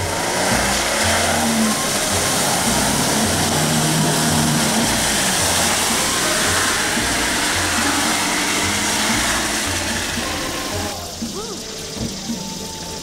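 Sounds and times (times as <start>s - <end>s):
car engine running: 0.0s - 13.0s
tyres splashing water: 0.0s - 13.0s.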